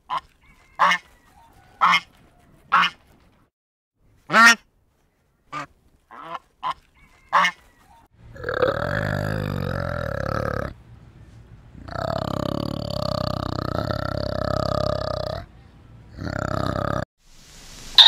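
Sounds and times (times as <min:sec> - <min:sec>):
geese honking: 0:00.1 - 0:03.0
orangutan deep throaty call: 0:08.3 - 0:10.8, 0:11.8 - 0:15.5.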